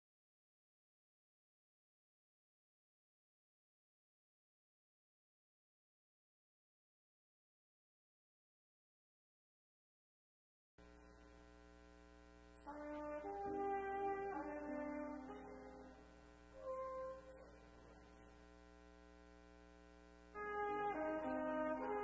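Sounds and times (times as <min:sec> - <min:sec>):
steady low hum: 0:10.8 - 0:22.0
piano playing: 0:12.6 - 0:17.6, 0:20.4 - 0:22.0
trumpet playing: 0:12.6 - 0:18.2, 0:20.2 - 0:22.0.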